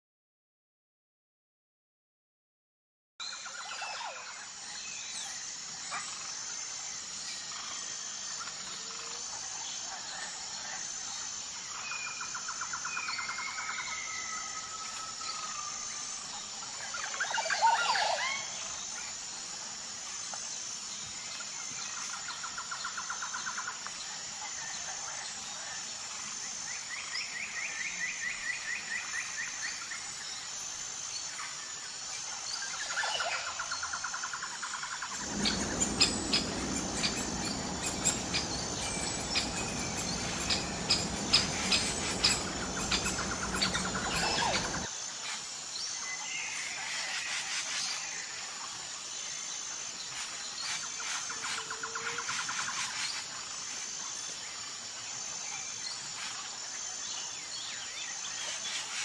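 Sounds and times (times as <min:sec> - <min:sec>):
steady high hiss: 0:35.0 - 0:45.2
birdsong trills and whistles: 0:35.2 - 0:44.9.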